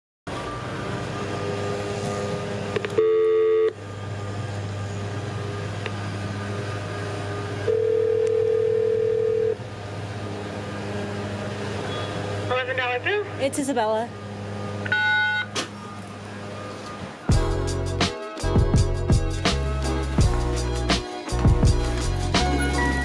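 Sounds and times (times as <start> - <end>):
intercom buzzy tone: 3.0 - 3.8, 7.7 - 9.6.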